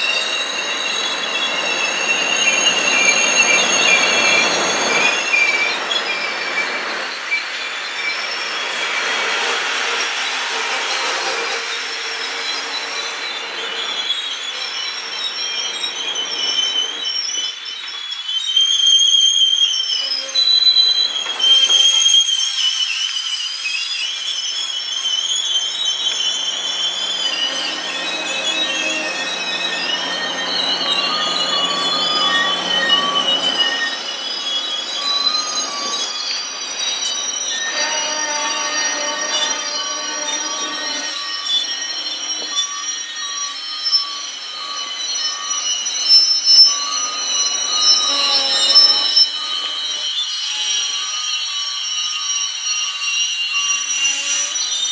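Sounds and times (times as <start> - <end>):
train wheels squealing on rails: 0.0 - 54.9.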